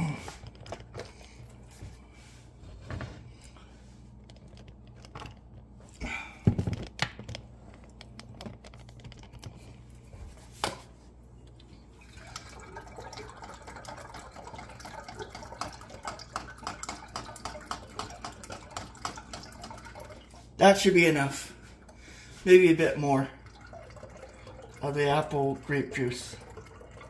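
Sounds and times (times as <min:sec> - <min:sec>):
juice pouring into glass jug: 0:11.8 - 0:27.0.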